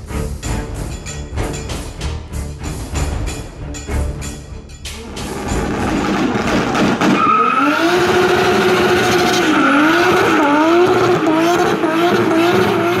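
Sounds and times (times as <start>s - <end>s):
car tyres squealing: 5.0s - 13.0s.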